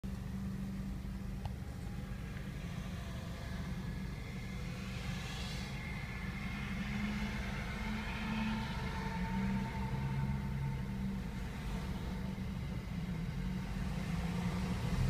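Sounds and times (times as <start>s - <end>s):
car engine hum: 0.0s - 15.0s
road noise: 0.0s - 15.0s.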